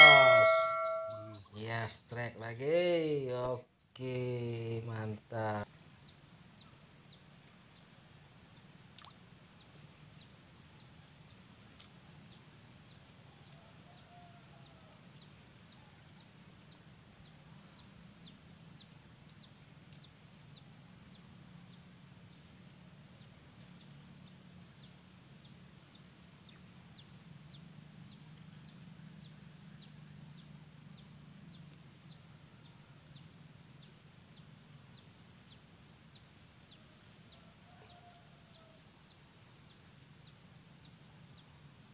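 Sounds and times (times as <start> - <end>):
low hum: 0.0 - 1.3.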